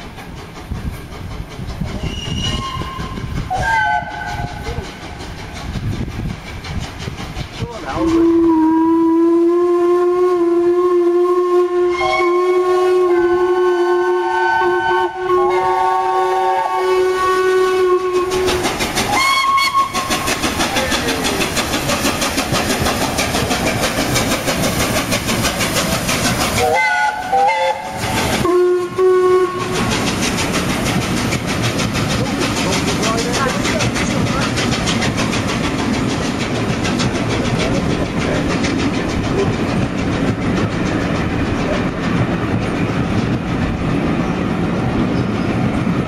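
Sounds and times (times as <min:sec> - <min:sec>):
locomotive exhaust beats: 0:00.0 - 0:46.0
steam locomotive chime whistle: 0:02.1 - 0:04.8, 0:08.0 - 0:18.5, 0:19.1 - 0:20.0, 0:26.6 - 0:29.8
wheels clattering over rail joints: 0:18.0 - 0:28.6, 0:29.5 - 0:46.0.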